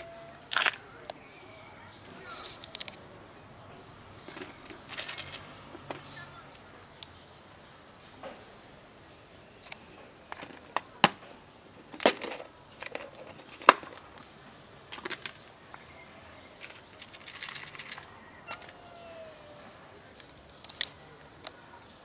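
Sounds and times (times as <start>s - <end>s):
kibble rattling in tub: 4.2s - 5.6s, 16.6s - 18.8s.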